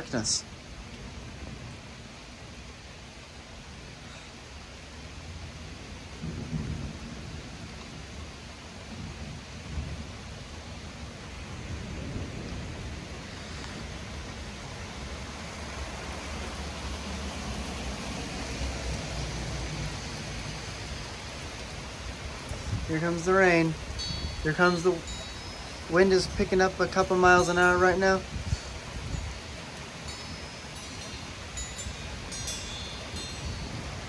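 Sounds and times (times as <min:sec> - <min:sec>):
steady rain: 0:00.0 - 0:34.0
thunder rumbling: 0:05.4 - 0:32.2.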